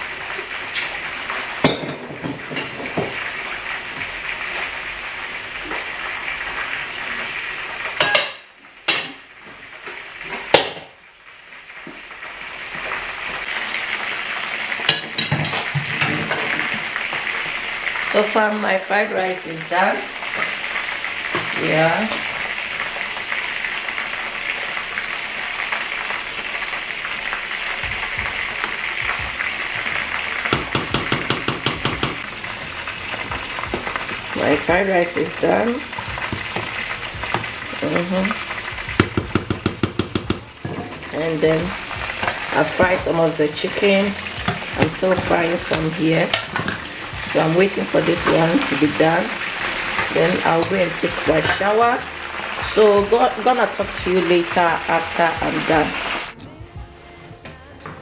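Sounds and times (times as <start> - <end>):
chicken sizzling in hot oil: 0.0 - 56.4
cooking pot and lid clanking: 1.6 - 3.2, 8.0 - 9.2, 14.8 - 16.9, 29.9 - 32.3, 39.0 - 41.3, 42.0 - 51.8
spatula tapping a metal pot: 27.8 - 32.2, 36.0 - 37.6, 38.9 - 41.2, 44.2 - 46.8
steady hiss: 31.6 - 39.1.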